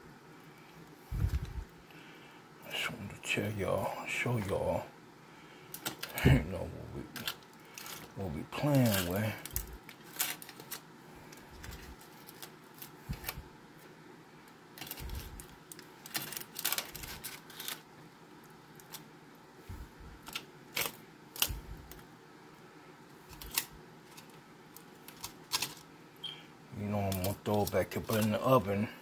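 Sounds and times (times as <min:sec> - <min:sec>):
aluminium foil crinkling: 0:05.7 - 0:13.4, 0:14.7 - 0:19.1, 0:20.2 - 0:22.0, 0:23.1 - 0:25.9, 0:26.8 - 0:28.6.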